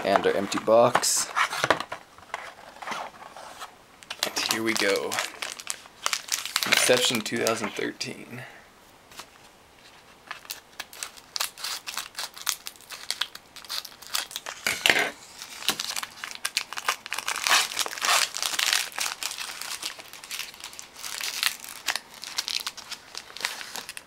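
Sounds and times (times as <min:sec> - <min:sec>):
foil wrapper tearing and crinkling: 0:04.1 - 0:07.6, 0:10.3 - 0:14.7, 0:15.4 - 0:24.0.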